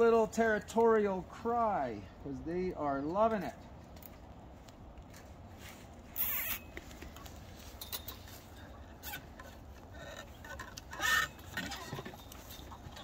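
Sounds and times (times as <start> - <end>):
rustling scraping handling noise: 5.0 - 13.0.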